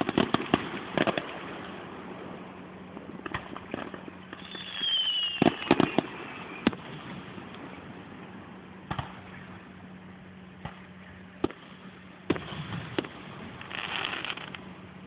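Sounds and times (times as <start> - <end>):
distant firework shells bursting: 0.0 - 1.9, 2.9 - 7.8, 8.8 - 9.6
firework crackle: 0.0 - 9.7, 10.6 - 15.0.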